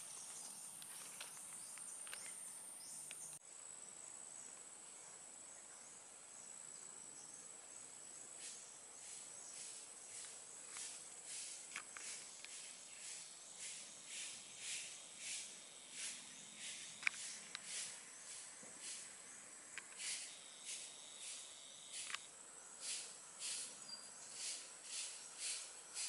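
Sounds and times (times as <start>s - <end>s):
high-pitched insect drone: 8.4s - 26.0s.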